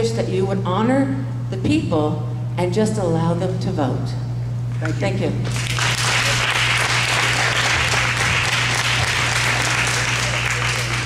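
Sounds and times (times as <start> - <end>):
steady low hum: 0.0 - 11.0
audience applauding: 5.5 - 11.0.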